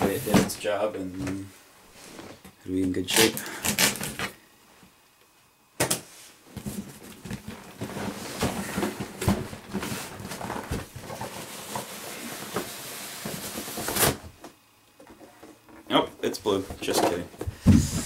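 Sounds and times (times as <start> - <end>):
cardboard scraping and rustling: 6.5 - 14.3.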